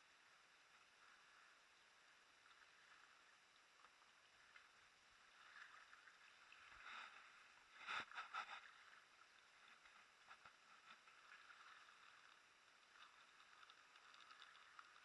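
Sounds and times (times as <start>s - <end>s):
water lapping at hull: 0.0s - 15.0s
paddle dipping in water: 5.2s - 15.0s.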